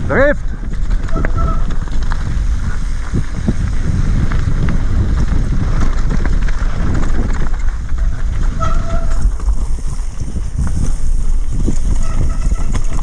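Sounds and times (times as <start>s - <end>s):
bike rattling over stones: 0.0s - 13.0s
tyres crunching on gravel: 0.0s - 13.0s
wind rumble on microphone: 0.0s - 13.0s
brake squeal: 1.0s - 1.8s, 8.5s - 9.4s, 11.8s - 13.0s.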